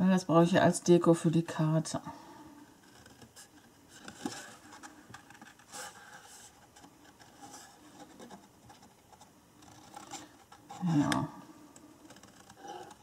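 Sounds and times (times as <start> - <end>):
paper rustling and scraping: 2.8 - 11.2.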